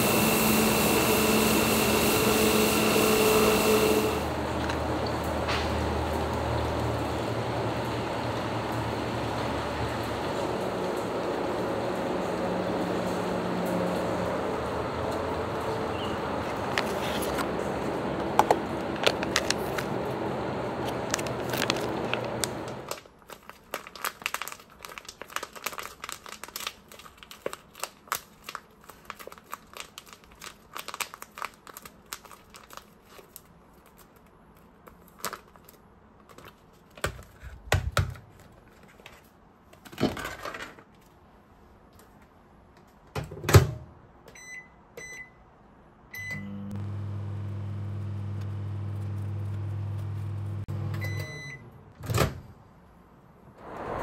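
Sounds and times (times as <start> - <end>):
microwave oven humming: 0.0 - 16.4, 17.4 - 23.0, 46.1 - 52.4
plastic packaging crinkling: 18.5 - 20.2, 20.8 - 37.4
microwave keypad beeps: 44.3 - 45.4, 46.1 - 46.6, 50.9 - 51.6
steady noise: 53.6 - 54.0.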